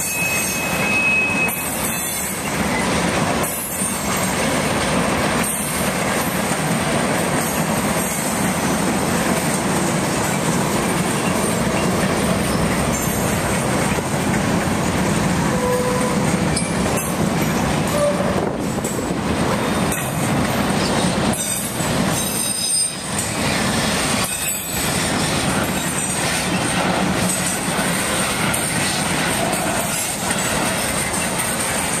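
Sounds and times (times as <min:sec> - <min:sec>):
high-pitched wheel squeal: 0:00.0 - 0:02.4, 0:15.5 - 0:16.8, 0:22.2 - 0:23.0
train wheels rumbling on rails: 0:00.0 - 0:32.0.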